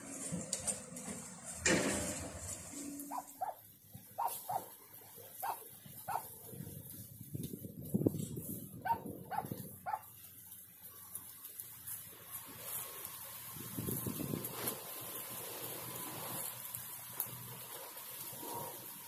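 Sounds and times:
weeds pulled from soil: 0.0s - 19.0s
dog barking: 3.0s - 3.6s, 4.2s - 4.8s, 5.4s - 6.4s, 8.8s - 10.1s.

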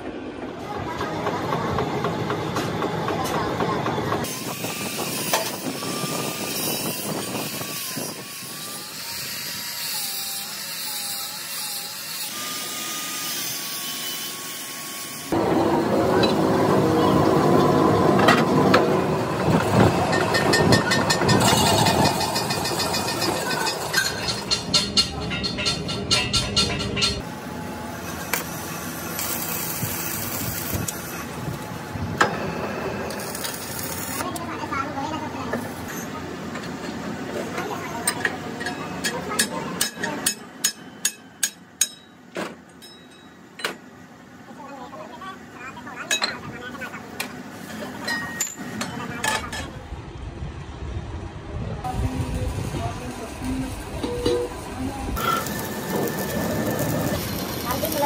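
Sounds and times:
angle grinder grinding metal: 4.2s - 18.9s, 53.2s - 58.0s
hiss: 28.2s - 31.3s
lathe running: 55.2s - 58.0s.

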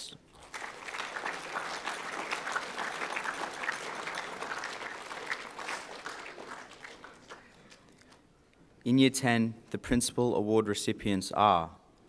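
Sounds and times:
audience applauding: 0.3s - 8.2s.

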